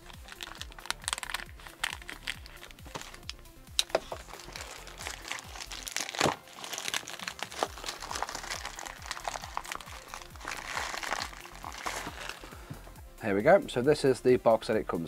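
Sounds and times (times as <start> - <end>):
plastic bag crinkling: 0.0 - 12.6.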